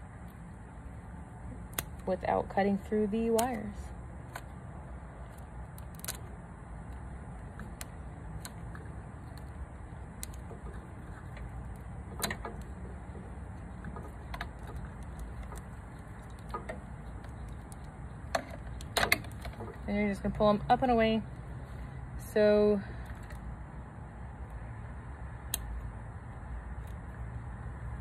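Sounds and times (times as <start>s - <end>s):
steady low rumble: 0.0s - 28.0s
shears snipping plastic: 1.6s - 4.5s.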